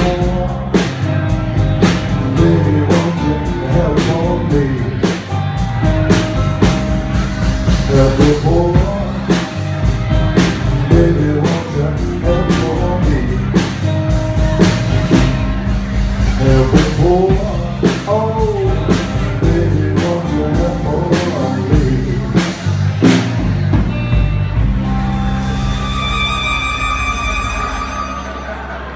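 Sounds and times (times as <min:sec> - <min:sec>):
person singing lead vocal: 0:00.0 - 0:01.2, 0:02.1 - 0:05.4, 0:07.7 - 0:13.8, 0:16.2 - 0:22.6
blues band playing: 0:00.0 - 0:28.9.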